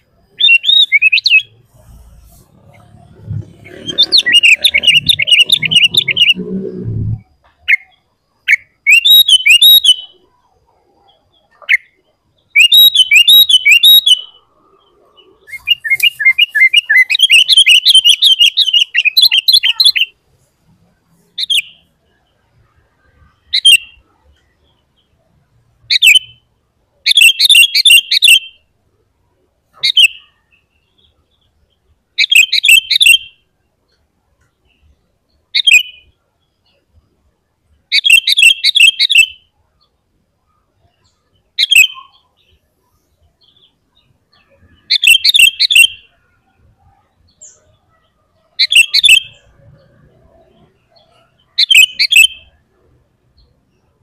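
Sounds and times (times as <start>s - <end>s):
bulbul chirping: 0.2s - 10.2s
low rumble: 1.6s - 7.3s.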